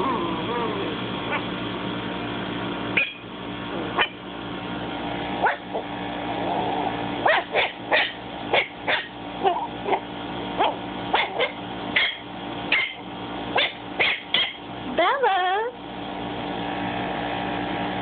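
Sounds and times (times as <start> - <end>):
steady hum: 0.0 - 18.0
puppy yipping and barking: 1.3 - 1.5, 3.0 - 3.2, 4.0 - 4.2, 5.4 - 5.8, 7.2 - 13.0, 13.6 - 14.6.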